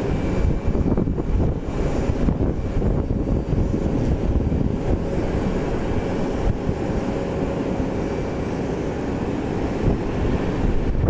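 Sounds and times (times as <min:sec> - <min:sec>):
faint jet engine whine: 0:00.0 - 0:11.0
jet engines rumbling: 0:00.0 - 0:11.0.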